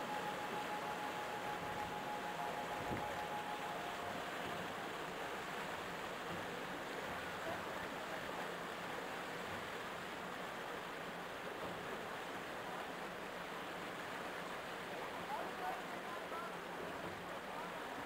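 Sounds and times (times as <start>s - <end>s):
water rushing along boat hull: 0.0s - 18.0s.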